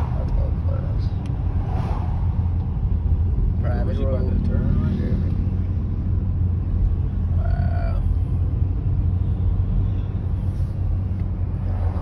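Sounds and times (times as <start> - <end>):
car road and engine rumble: 0.0 - 12.0.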